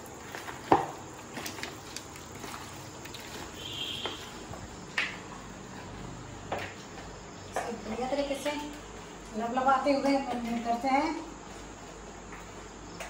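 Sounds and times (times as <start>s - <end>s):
hands squelching in wet marinade: 0.0s - 5.0s.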